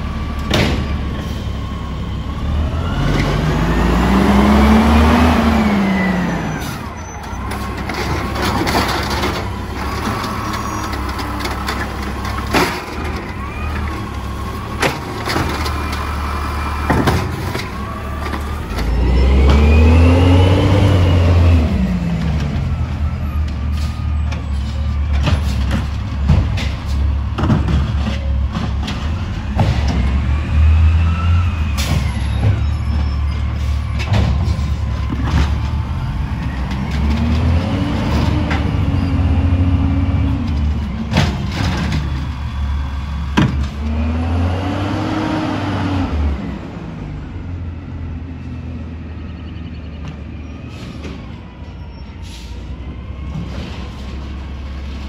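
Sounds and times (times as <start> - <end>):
diesel truck engine revving: 0.0 - 51.3
knocks and clanks: 16.8 - 18.9, 23.5 - 30.3, 33.9 - 35.8, 40.3 - 42.4.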